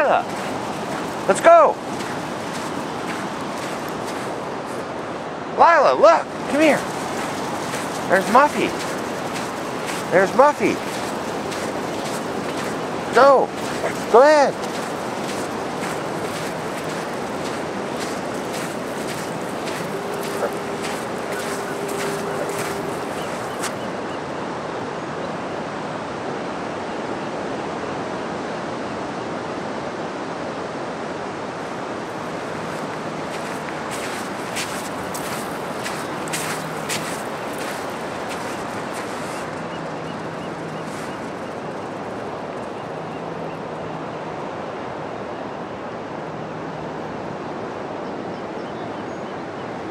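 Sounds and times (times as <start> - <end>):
ocean surf rushing: 0.0 - 26.2, 30.6 - 44.2.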